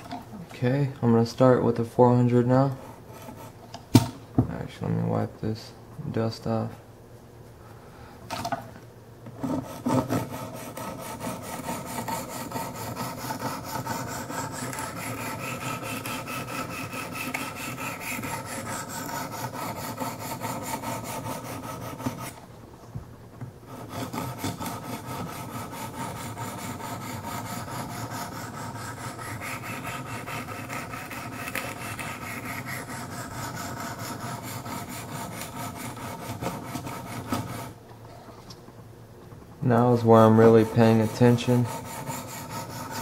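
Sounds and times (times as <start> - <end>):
stone scraping knife edge: 9.6 - 22.4, 23.7 - 37.6.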